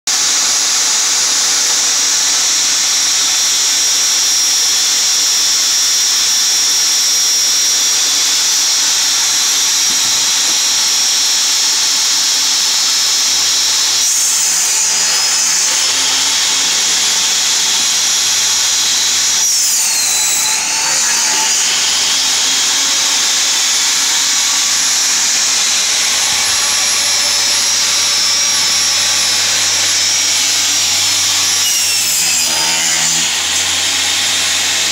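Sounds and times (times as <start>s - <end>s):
table saw motor whine: 0.2s - 34.9s
saw blade cutting wood: 12.2s - 34.9s.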